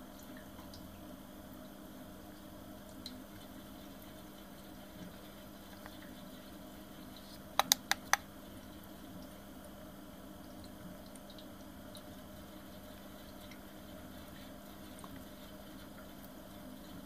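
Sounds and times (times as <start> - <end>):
faint steady hum: 0.0 - 17.0
thermometer button clicks: 7.6 - 8.2.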